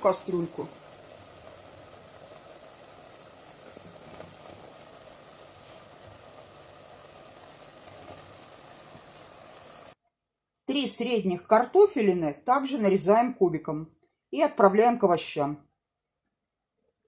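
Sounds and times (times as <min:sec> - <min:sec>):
vegetables sizzling in a pot: 0:00.0 - 0:10.0.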